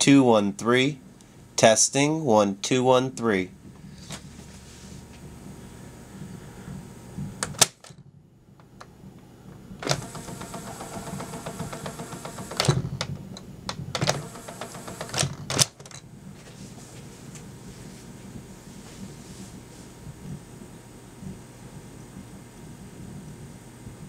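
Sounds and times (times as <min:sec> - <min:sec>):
tape mechanism whirring: 0:09.8 - 0:15.9.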